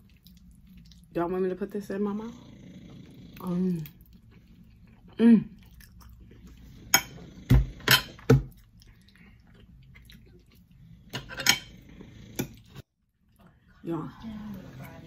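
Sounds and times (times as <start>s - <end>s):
utensils clinking on a plate: 6.8s - 8.4s, 11.1s - 11.8s.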